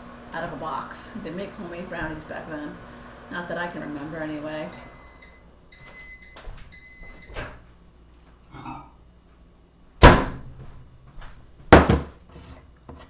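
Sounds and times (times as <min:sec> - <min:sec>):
microwave oven beeping: 0:02.4 - 0:07.6.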